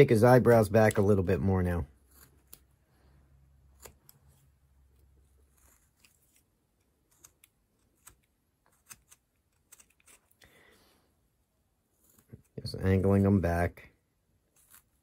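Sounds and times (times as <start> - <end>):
carving blade scraping wood: 1.9 - 2.9, 3.6 - 10.4, 11.9 - 13.3, 14.4 - 15.0.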